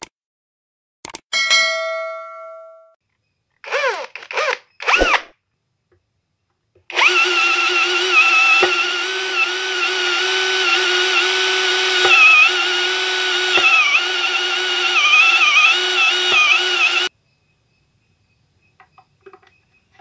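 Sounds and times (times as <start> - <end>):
sharp clicks: 1.0 - 1.2
cordless drill whining: 3.6 - 5.3, 6.9 - 17.1.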